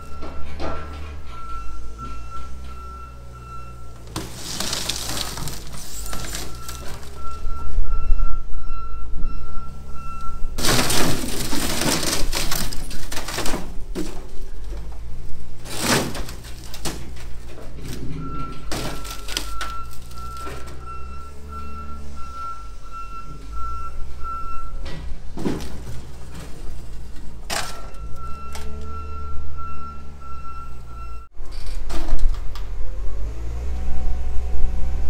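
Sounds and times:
backup alarm beeping: 0:00.0 - 0:04.2, 0:05.4 - 0:11.0, 0:18.0 - 0:24.9, 0:27.6 - 0:31.3
diesel engine running: 0:00.0 - 0:31.6
sheet metal crunching: 0:03.8 - 0:07.7, 0:10.4 - 0:21.0
glass breaking: 0:10.6 - 0:13.6.

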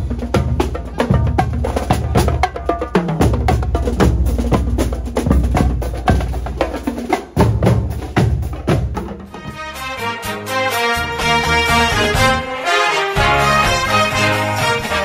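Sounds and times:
marching bass and snare drums: 0:00.0 - 0:12.4
tuneful outro music: 0:09.3 - 0:15.0.

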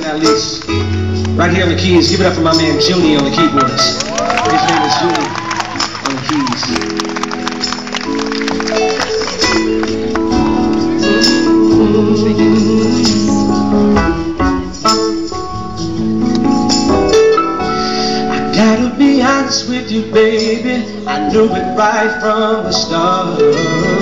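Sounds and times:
acoustic guitar: 0:00.0 - 0:04.1, 0:05.4 - 0:24.0
electric keyboard chords: 0:00.0 - 0:24.0
man singing into microphone: 0:10.8 - 0:15.0, 0:18.0 - 0:24.0.

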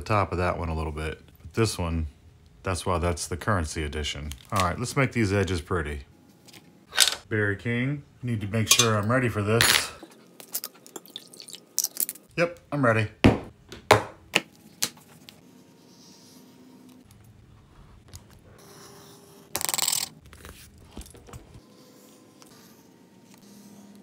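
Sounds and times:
metal cup clinking: 0:08.7 - 0:09.9.

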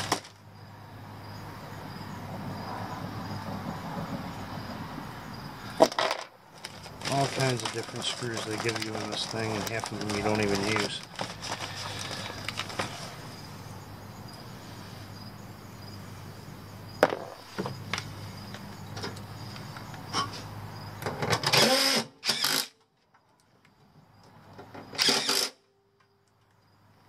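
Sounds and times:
drill driving screws into metal: 0:21.4 - 0:22.8, 0:25.0 - 0:25.6.

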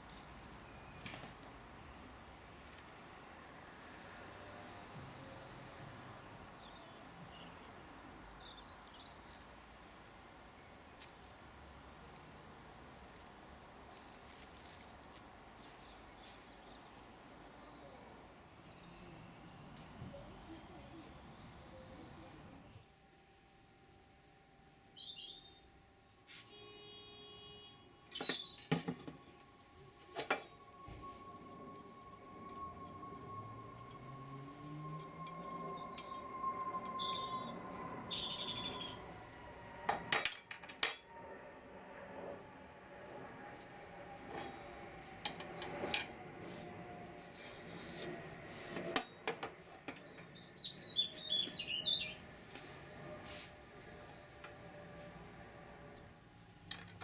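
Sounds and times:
metal tubes rubbing and scraping: 0:44.2 - 0:49.2.

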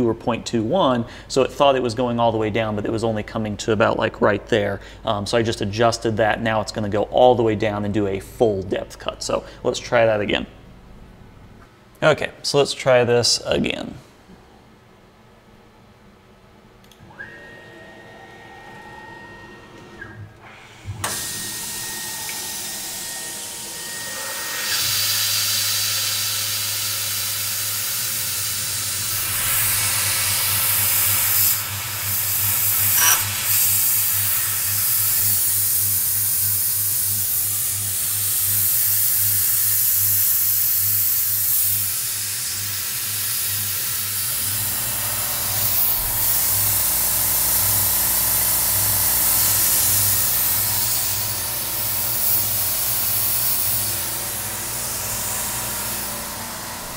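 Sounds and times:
high whine: 0:17.9 - 0:25.7, 0:44.3 - 0:56.9
mist coolant sprayer hissing: 0:20.6 - 0:56.9
milling machine cutting steel: 0:21.0 - 0:56.9
low pulsing hum: 0:44.4 - 0:56.9.

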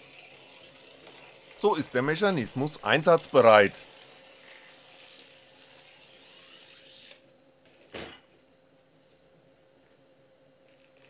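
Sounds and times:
stepper motor running: 0:00.0 - 0:07.2.

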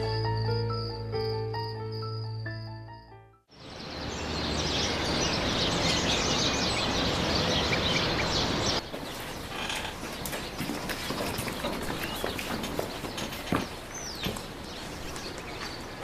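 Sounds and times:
birds chirping: 0:03.5 - 0:16.0
steady outdoor noise: 0:03.5 - 0:16.0.

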